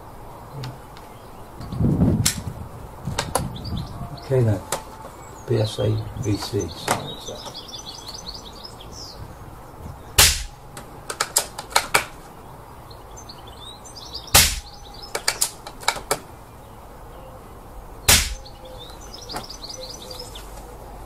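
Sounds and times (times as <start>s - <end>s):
air rifle shots: 10.2s - 10.6s, 14.3s - 16.1s, 18.1s - 18.5s.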